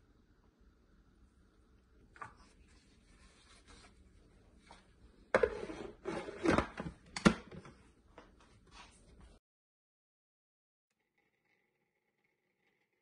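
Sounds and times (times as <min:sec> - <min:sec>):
plastic lid scraping on bowl: 0:05.4 - 0:06.9.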